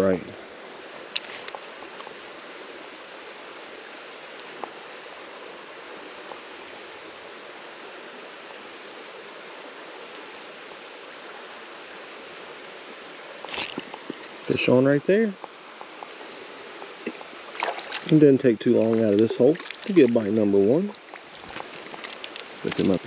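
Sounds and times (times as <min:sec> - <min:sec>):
flowing creek water: 0:00.0 - 0:23.0.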